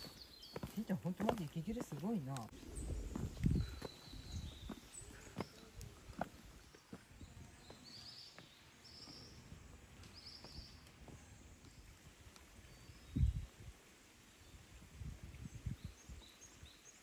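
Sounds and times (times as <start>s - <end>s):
small birds trilling: 0.0s - 11.9s
footsteps on stone path: 0.0s - 12.6s.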